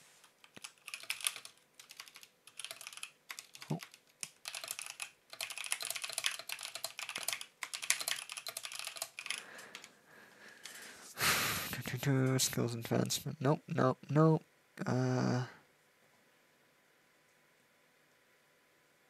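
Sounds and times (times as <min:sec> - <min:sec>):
typing on computer keyboard: 0:00.2 - 0:09.9.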